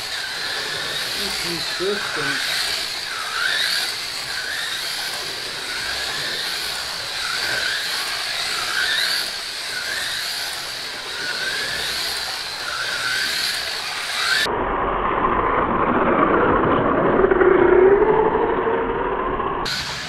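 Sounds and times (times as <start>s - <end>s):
slot car motors whining: 0.0s - 14.5s.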